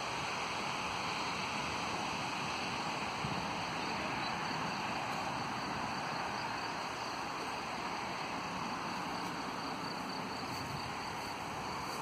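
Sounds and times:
steady outdoor rushing noise: 0:00.0 - 0:12.0.

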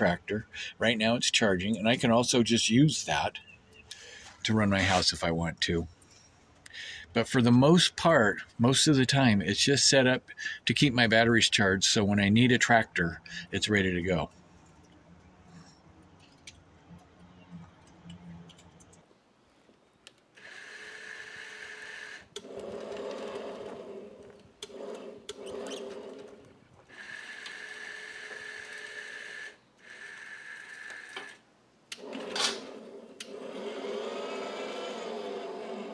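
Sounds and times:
small electric motor whining: 0:20.4 - 0:31.4, 0:32.0 - 0:35.9.

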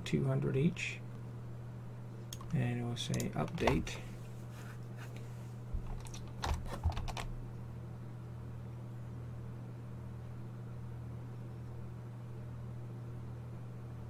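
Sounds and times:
low electrical hum: 0:00.0 - 0:14.0
computer keyboard clicks: 0:05.8 - 0:07.3.

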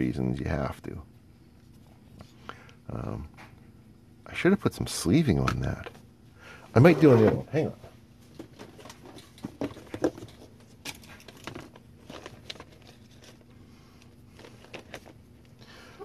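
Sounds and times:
steady low hum: 0:00.0 - 0:16.0
clicks of rummaging small parts: 0:08.4 - 0:13.5, 0:14.4 - 0:15.2.

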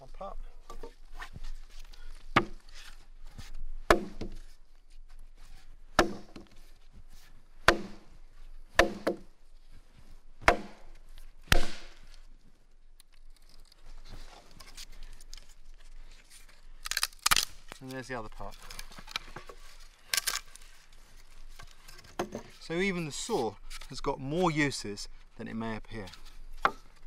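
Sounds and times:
wood knocking against log: 0:06.0 - 0:06.6, 0:08.8 - 0:09.3, 0:22.1 - 0:22.5.

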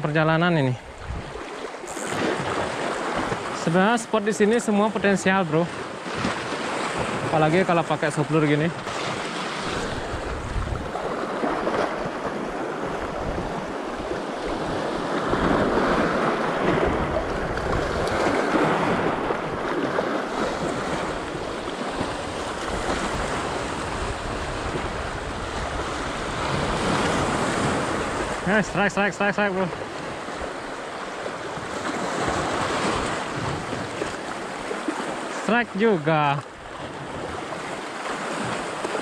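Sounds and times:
waves washing over rocks: 0:00.0 - 0:39.0
wind buffeting microphone: 0:00.8 - 0:03.5, 0:08.8 - 0:28.5.

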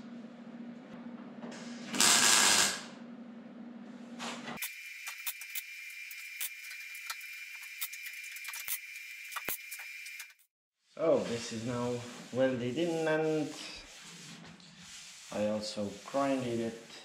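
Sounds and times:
welder hissing and humming: 0:01.9 - 0:02.8
welding crackle with sharp pops: 0:01.9 - 0:02.9.

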